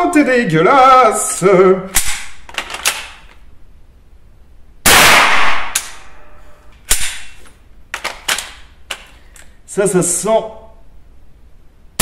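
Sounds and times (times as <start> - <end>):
rifle shot: 4.8 - 6.2, 6.9 - 7.4
metallic clicks of gun action: 6.8 - 9.5.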